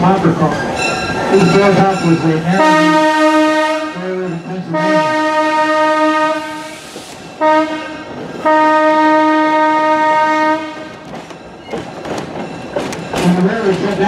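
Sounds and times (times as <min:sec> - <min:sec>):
locomotive horn blasts: 0:02.5 - 0:06.8, 0:07.4 - 0:11.0.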